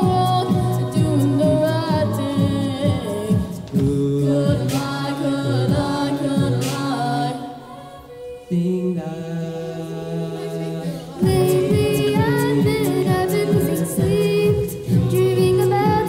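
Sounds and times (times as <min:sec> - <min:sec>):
beatboxed kick-drum thumps: 0:00.0 - 0:07.4, 0:11.2 - 0:16.0
children singing in harmony: 0:00.0 - 0:16.0.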